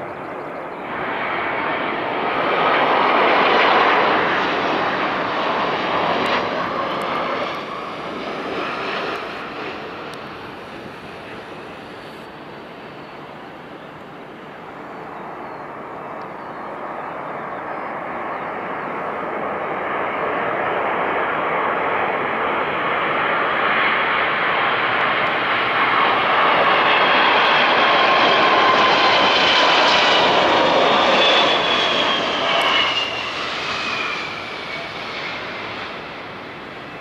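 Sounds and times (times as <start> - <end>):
jet engines on landing approach: 0.0 - 37.0
high jet whine falling in pitch: 24.7 - 37.0.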